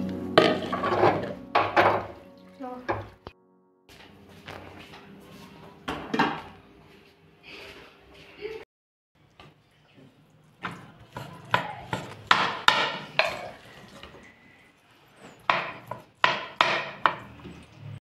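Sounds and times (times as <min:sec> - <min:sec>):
spoon knocking and scraping on dishes: 0:10.6 - 0:13.6, 0:15.4 - 0:17.6.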